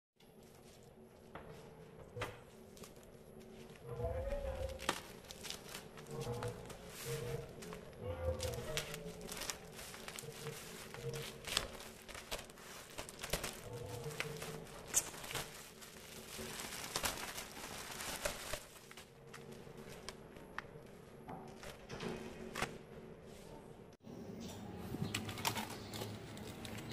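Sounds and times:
plastic bag tearing and crinkling: 3.5s - 20.1s.

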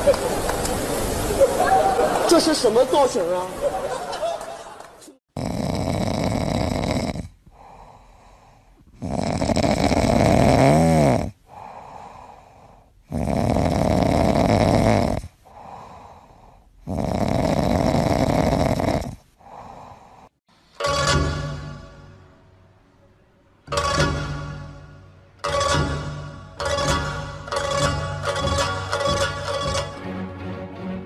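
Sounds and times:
cat snoring: 5.3s - 20.3s
cat soft breathing: 7.4s - 9.1s, 11.5s - 13.0s, 15.4s - 16.9s.

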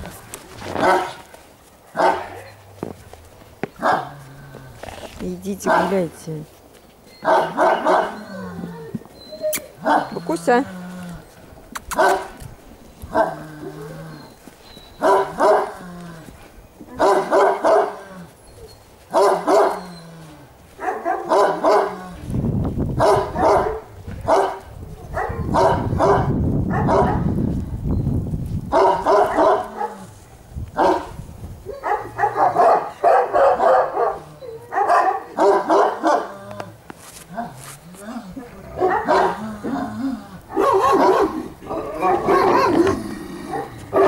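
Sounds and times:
dogs barking: 0.8s - 1.2s, 1.9s - 2.5s, 3.8s - 4.2s, 5.6s - 6.0s, 7.2s - 8.6s, 9.8s - 10.6s, 11.9s - 12.4s, 13.1s - 13.8s, 15.0s - 15.9s, 16.9s - 18.3s, 19.1s - 20.0s, 20.7s - 22.1s, 23.0s - 27.4s, 28.7s - 30.1s, 30.8s - 36.4s, 38.7s - 44.0s.

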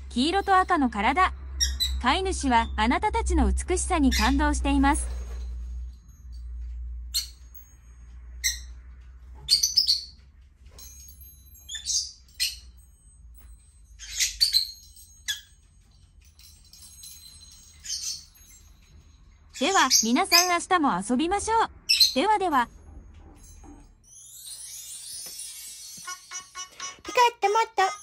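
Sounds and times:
parakeets chirping: 1.4s - 2.8s, 4.0s - 4.5s, 7.1s - 7.5s, 8.4s - 8.8s, 9.4s - 10.2s, 11.6s - 12.8s, 13.9s - 15.7s, 16.4s - 20.6s.

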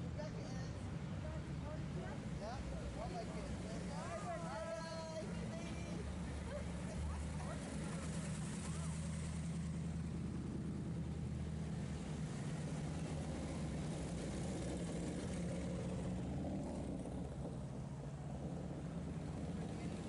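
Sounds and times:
engines rumbling past: 0.0s - 20.0s.

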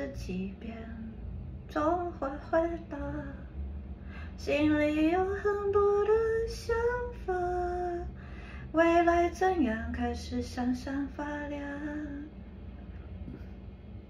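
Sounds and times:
woman singing a slow pop song: 0.0s - 3.5s, 4.3s - 12.4s.

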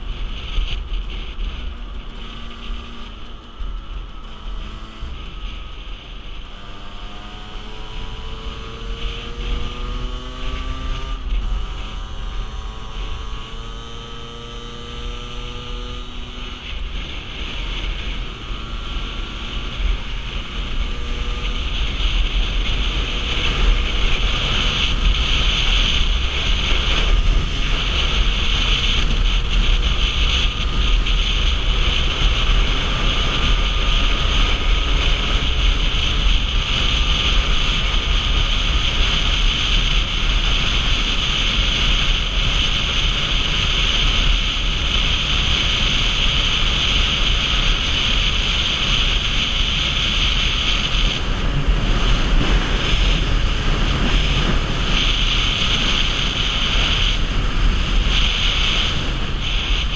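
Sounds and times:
motorcycle engine accelerating: 0.0s - 59.9s
wind on microphone: 0.0s - 59.9s.

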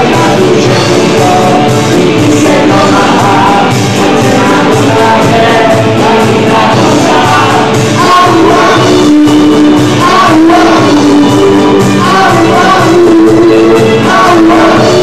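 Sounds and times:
dance band playing: 0.0s - 15.0s
drum kit with cymbals: 0.0s - 15.0s
woman singing: 0.0s - 15.0s.

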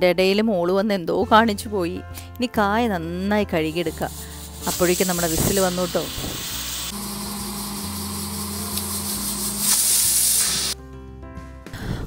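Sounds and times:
soft background music: 0.0s - 12.0s
pressure cooker steam hissing: 3.9s - 10.8s.

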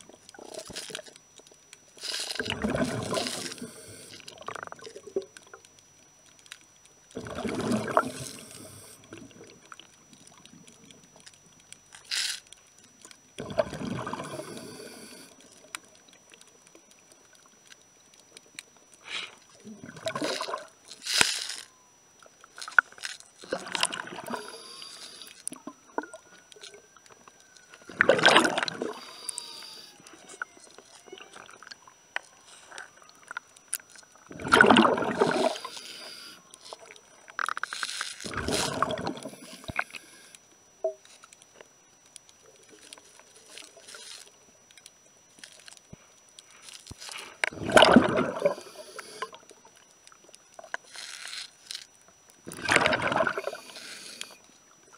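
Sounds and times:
underwater regulator bubbling: 2.0s - 5.3s, 7.2s - 9.5s, 13.4s - 15.2s, 27.9s - 29.7s, 34.3s - 36.3s, 37.4s - 40.2s, 47.4s - 49.4s, 52.5s - 54.4s.

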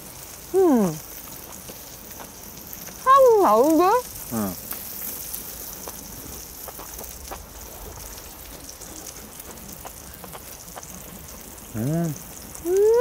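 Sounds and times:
meat sizzling in hot fat: 0.0s - 13.0s.

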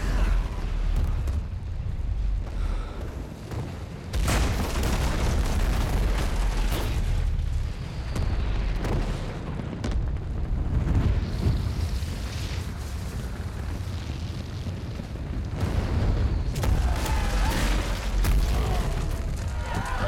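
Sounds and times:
deep rumbling: 0.0s - 20.0s
explosion blast: 4.1s - 20.0s.

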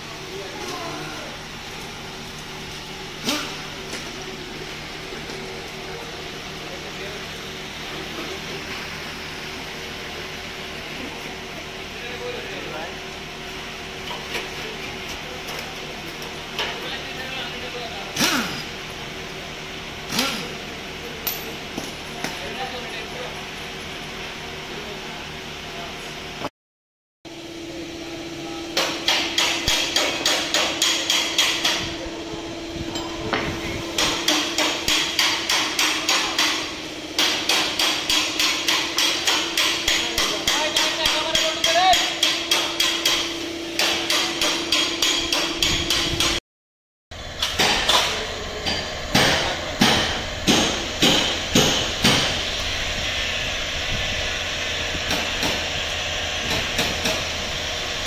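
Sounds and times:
rapid hammer blows: 48.8s - 52.5s.

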